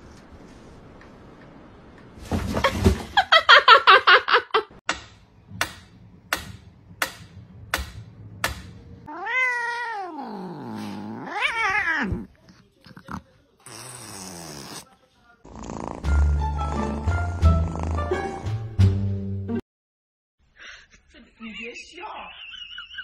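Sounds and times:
cat meowing: 9.1s - 12.3s.

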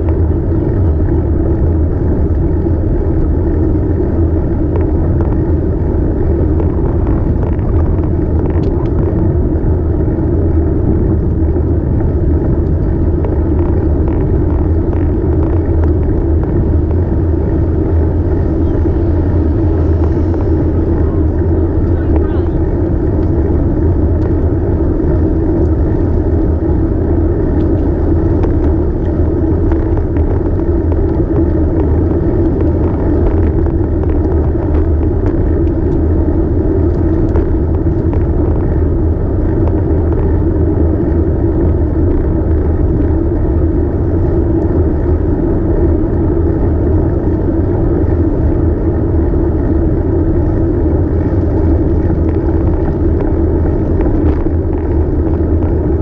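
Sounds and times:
bicycle road noise: 0.0s - 56.0s
wind rumble: 0.0s - 56.0s.

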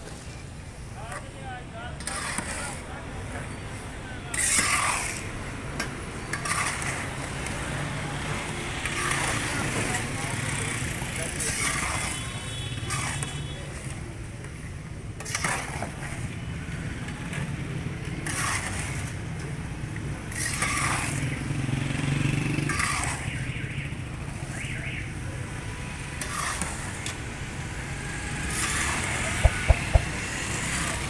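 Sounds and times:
sharp knocks: 29.4s - 30.2s.

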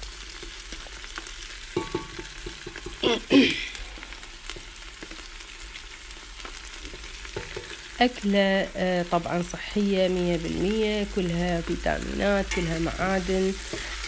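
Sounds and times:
vegetables sizzling in hot oil: 0.0s - 14.0s.

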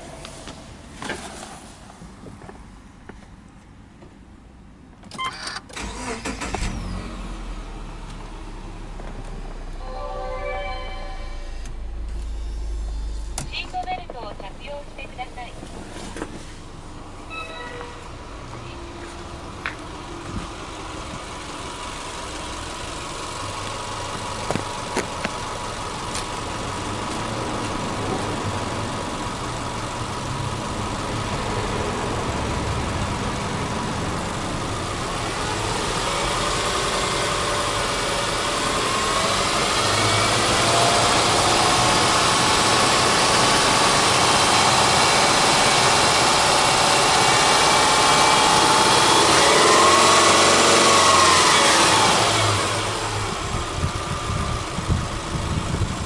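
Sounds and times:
car engine idling and revving: 0.0s - 56.0s.

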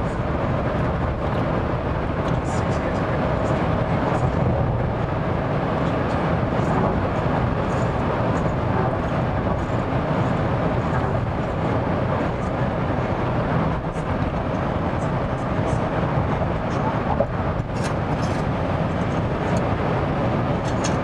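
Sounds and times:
car road and engine noise: 0.0s - 21.0s.

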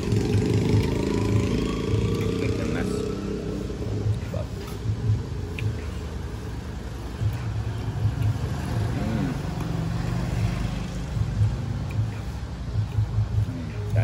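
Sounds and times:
rising and falling tone: 0.0s - 5.2s
vehicle engine droning: 0.0s - 14.0s.

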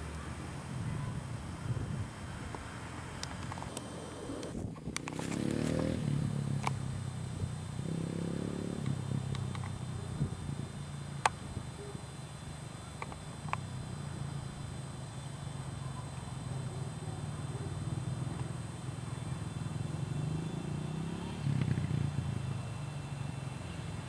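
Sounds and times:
distant dirt bike engine revving: 2.4s - 24.0s
sharp clicks: 13.0s - 13.7s.

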